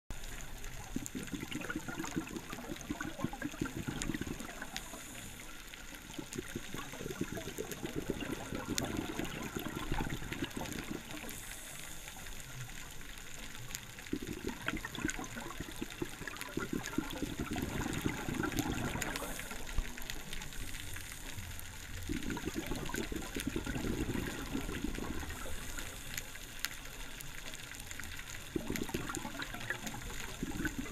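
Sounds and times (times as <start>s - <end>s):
exhaled bubbles gurgling: 0.1s - 30.9s
regulator inhale hiss: 4.5s - 6.9s, 11.0s - 13.0s, 19.1s - 22.0s, 24.9s - 27.1s.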